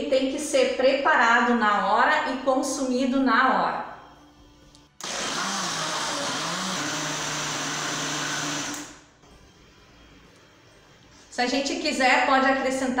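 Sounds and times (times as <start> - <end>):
electric blender running: 5.0 - 9.1.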